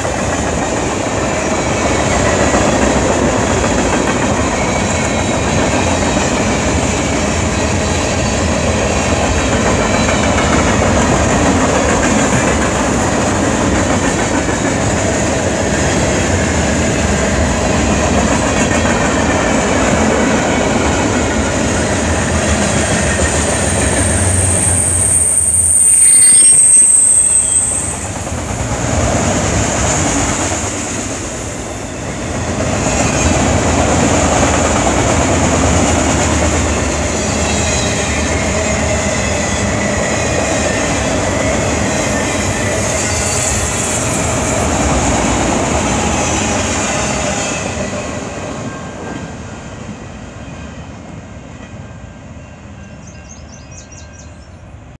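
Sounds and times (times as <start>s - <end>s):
freight train rolling past: 0.0s - 55.0s
high wheel squeal: 22.7s - 28.3s.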